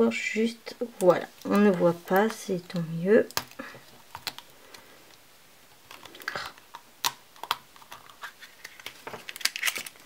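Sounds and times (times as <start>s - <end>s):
plastic capsule clicking: 1.0s - 4.5s, 5.9s - 10.0s.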